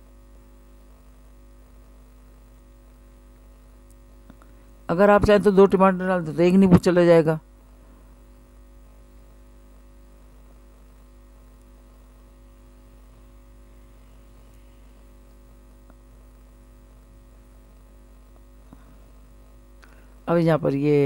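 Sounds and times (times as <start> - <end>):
low mains hum: 0.0 - 21.0
faint hiss: 10.3 - 16.6.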